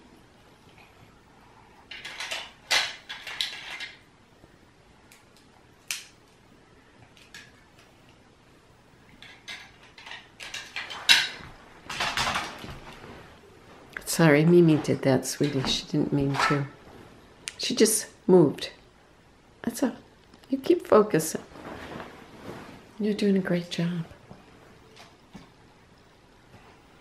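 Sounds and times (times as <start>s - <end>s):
plastic toy bricks clattering: 1.9s - 4.0s, 9.2s - 11.3s.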